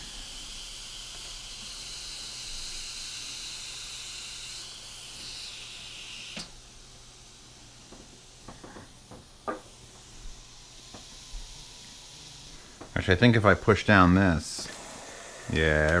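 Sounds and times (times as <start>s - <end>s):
steam hissing from valve: 0.0s - 16.0s.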